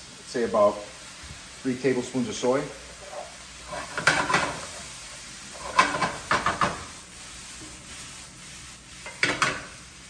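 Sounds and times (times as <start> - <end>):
light sizzle: 0.0 - 10.0
wooden spatula scraping skillet: 2.8 - 9.9.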